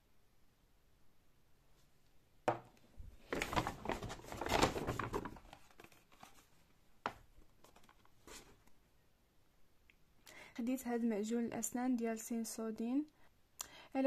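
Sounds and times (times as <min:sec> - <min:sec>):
plastic stick knocking on table: 0:02.5 - 0:02.7
cardboard box rustling in paper bag: 0:03.2 - 0:06.5.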